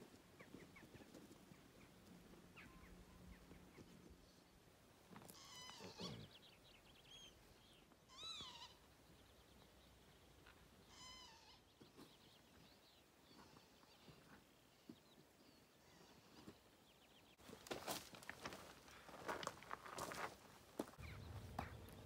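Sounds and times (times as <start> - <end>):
small birds chirping: 0.0 - 17.7, 18.8 - 22.0
faint animal cries: 5.2 - 6.4, 8.1 - 8.9, 10.8 - 11.8, 15.8 - 16.6.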